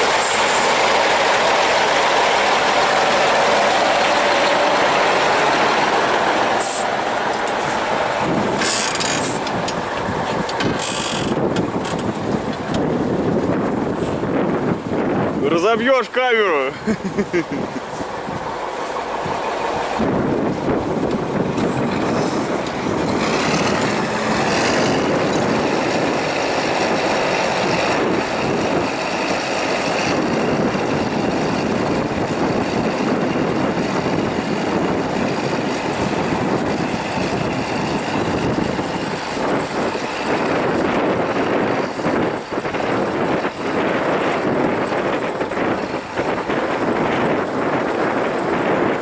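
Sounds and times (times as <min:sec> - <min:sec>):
wind on microphone: 0:00.0 - 0:15.8, 0:16.8 - 0:49.0
tractor diesel engine running: 0:00.0 - 0:49.0.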